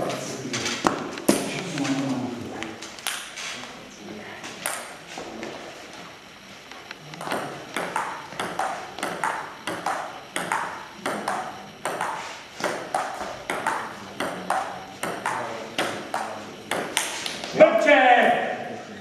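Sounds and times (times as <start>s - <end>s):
table tennis ball clicking: 7.2s - 17.5s.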